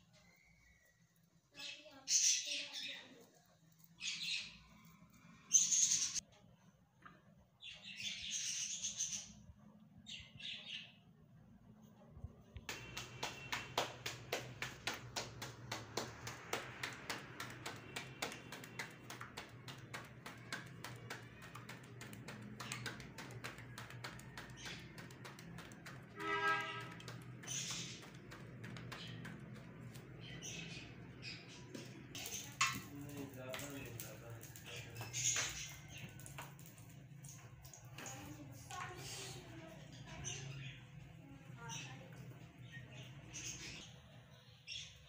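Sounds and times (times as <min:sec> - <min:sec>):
dough slapped between palms: 0:12.6 - 0:31.0.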